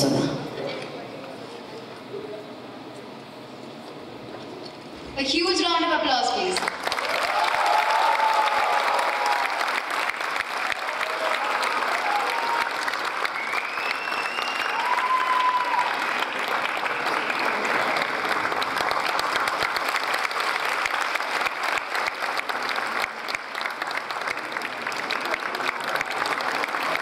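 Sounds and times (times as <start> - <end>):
audience applauding: 6.6 - 27.0.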